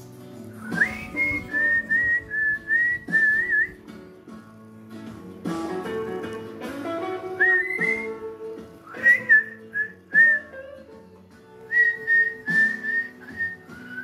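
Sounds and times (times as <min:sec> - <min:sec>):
guitar music: 0:00.0 - 0:14.0
whistled melody: 0:00.5 - 0:04.0, 0:05.6 - 0:14.0.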